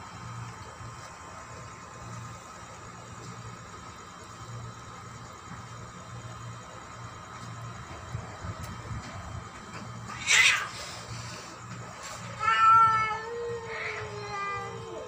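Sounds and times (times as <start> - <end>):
cat yowling: 10.1 - 11.0, 12.3 - 15.0
cat hissing: 10.1 - 11.6.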